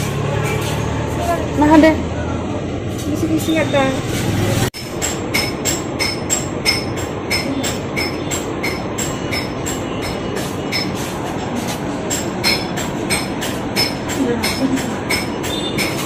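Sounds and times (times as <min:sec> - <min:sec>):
constant running noise: 0:00.0 - 0:16.0
rhythmic mechanical clatter: 0:04.2 - 0:16.0.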